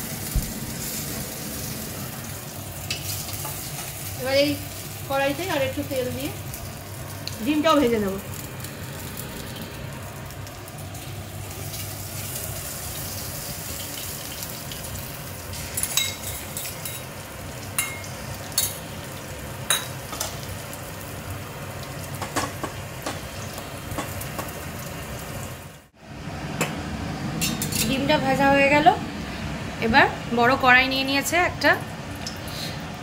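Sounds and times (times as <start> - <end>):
egg sizzling in hot oil: 0.0 - 26.0.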